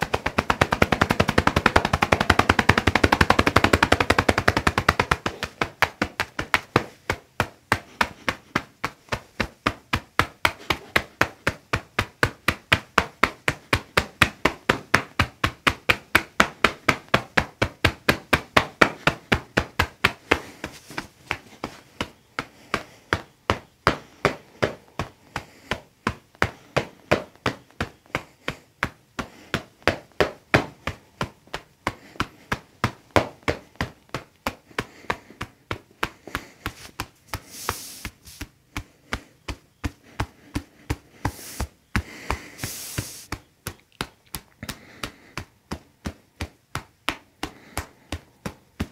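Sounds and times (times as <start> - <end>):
hand striking a person's back: 0.0 - 48.9.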